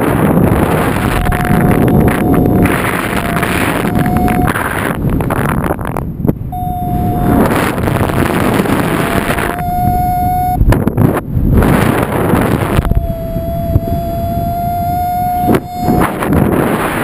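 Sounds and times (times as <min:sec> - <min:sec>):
wind buffeting microphone: 0:00.0 - 0:17.0
thin steady tone: 0:00.6 - 0:05.0, 0:06.5 - 0:10.6, 0:12.8 - 0:16.4.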